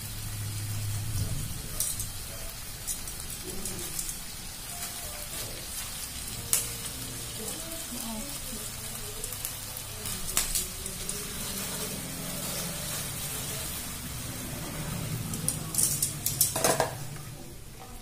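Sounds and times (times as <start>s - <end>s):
chicken sizzling in grill pan: 0.0s - 18.0s
metal tongs clicking on pan: 1.7s - 4.9s, 6.5s - 6.8s, 10.0s - 11.6s, 15.3s - 17.0s.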